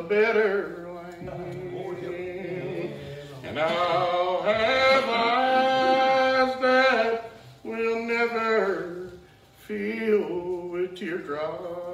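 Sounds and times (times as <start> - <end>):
preacher chanting in sung tones: 0.0 - 11.9.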